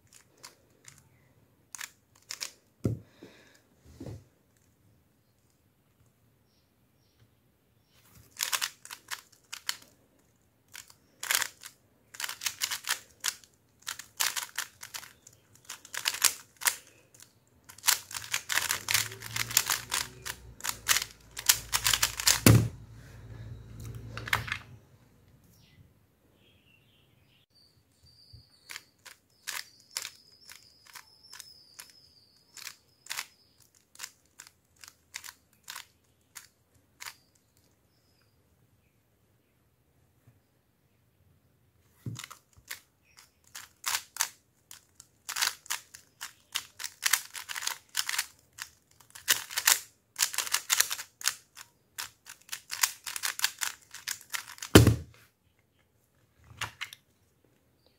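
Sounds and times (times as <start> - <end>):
plastic puzzle cube clicking: 0.0 - 1.0, 1.7 - 2.7, 8.2 - 22.7, 28.6 - 37.8, 42.1 - 55.0.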